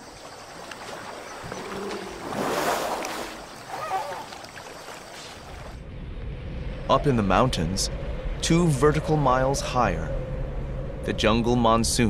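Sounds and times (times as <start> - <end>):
muddy water sloshing and splashing: 0.0 - 5.8.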